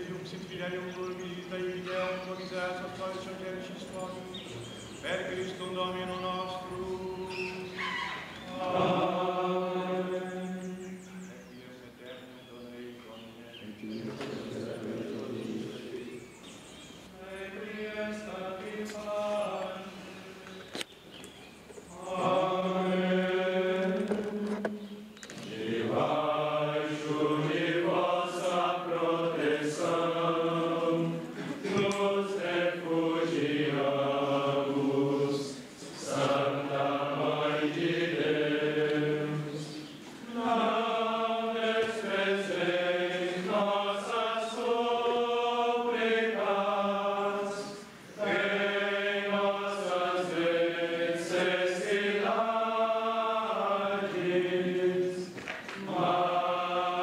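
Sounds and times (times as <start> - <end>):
group singing slow chant: 0.0 - 11.4, 13.9 - 20.7, 21.9 - 57.0
singers breathing: 31.2 - 31.7, 47.8 - 48.2.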